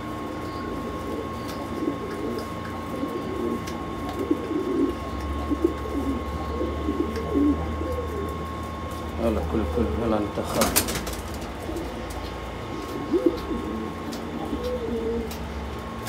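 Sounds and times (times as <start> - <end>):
deeper hum: 0.0 - 16.0
pigeons cooing: 0.0 - 16.0
steady hum: 0.0 - 16.0.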